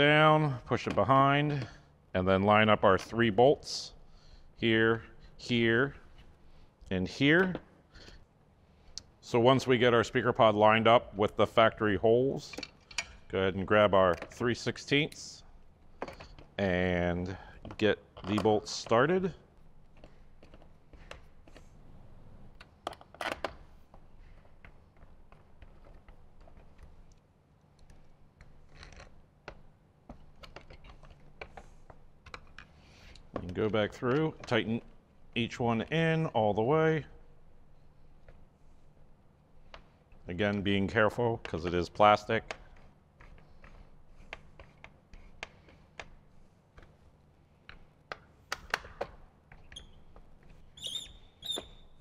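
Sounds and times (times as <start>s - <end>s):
plastic squeaks: 49.5s - 52.0s.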